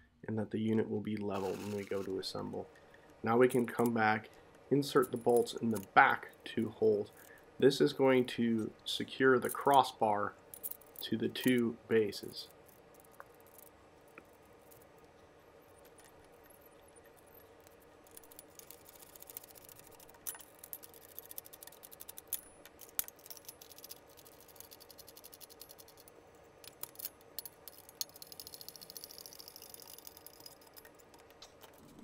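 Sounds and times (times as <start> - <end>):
socket ratchet clicking: 26.7 - 31.8.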